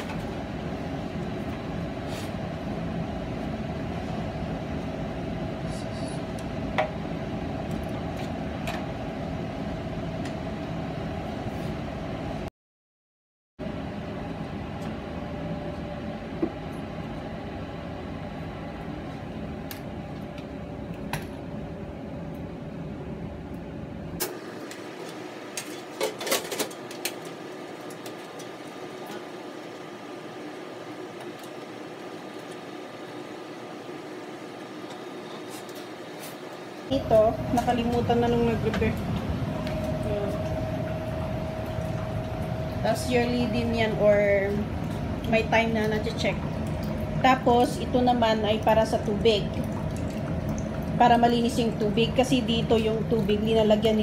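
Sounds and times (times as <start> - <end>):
furnace equipment humming: 0.0 - 12.5, 13.6 - 54.0
faint whine: 34.8 - 49.8.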